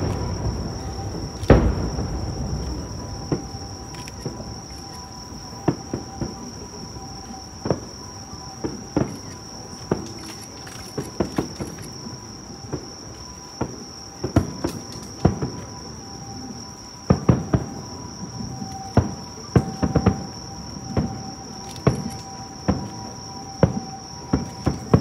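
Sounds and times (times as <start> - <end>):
distant fireworks bangs: 0.0 - 10.1, 17.0 - 25.0
night insects chorus: 0.0 - 25.0.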